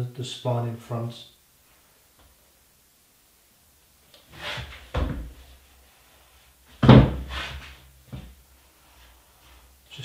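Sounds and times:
roller tool knocks and thuds: 6.8s - 8.3s.

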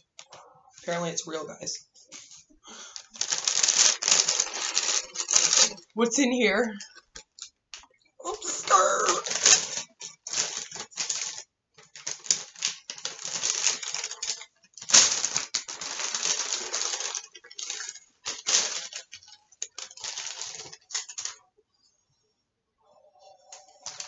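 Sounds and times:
paper bag crinkling: 2.1s - 5.9s, 8.3s - 21.4s, 23.3s - 24.0s.

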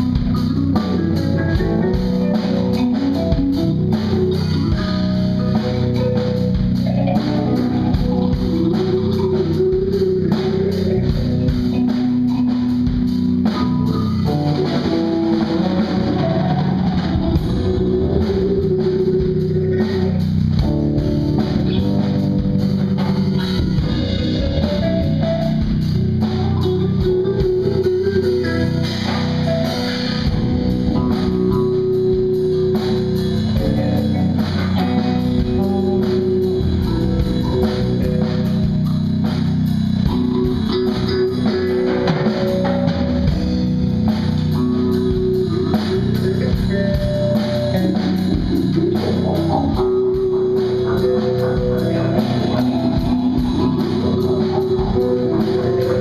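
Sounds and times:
bass guitar: 0.0s - 56.0s
drum kit playing: 0.0s - 56.0s
electric guitar: 0.0s - 56.0s.

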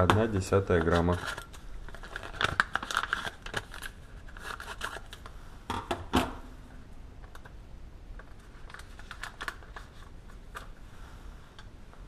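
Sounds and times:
paper crinkling: 0.0s - 5.4s, 8.2s - 10.8s.

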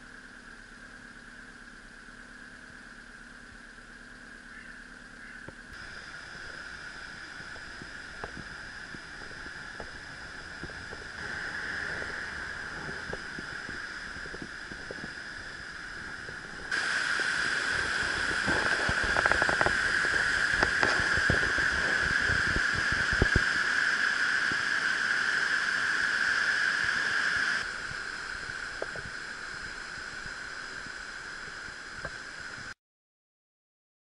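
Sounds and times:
floodwater rushing: 5.8s - 32.3s.

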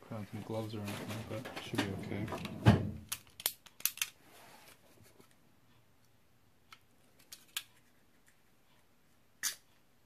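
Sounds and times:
hand tool clicking and snipping: 3.1s - 4.1s.

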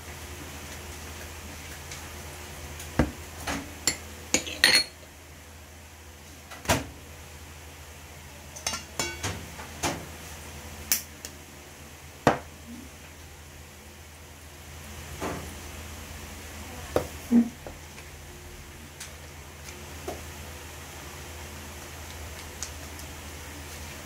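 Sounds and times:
kitchenware clinking and knocking: 3.9s - 5.0s.

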